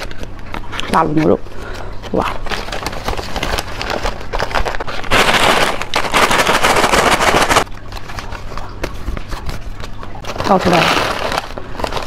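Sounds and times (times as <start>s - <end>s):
crackers rattling in shaken bag: 0.0s - 12.0s
paper bag crinkling: 0.0s - 12.0s.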